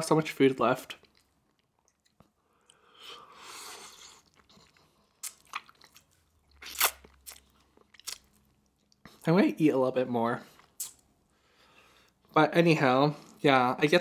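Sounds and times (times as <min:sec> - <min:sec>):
crunchy bites: 0:04.1 - 0:08.5
wet smacking of eating: 0:04.2 - 0:09.2.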